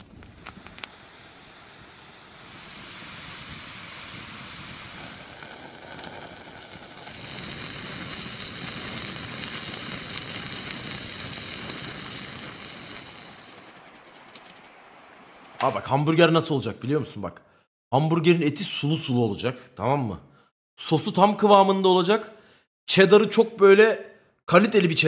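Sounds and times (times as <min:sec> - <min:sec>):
fire burning with hiss: 0:00.0 - 0:16.0.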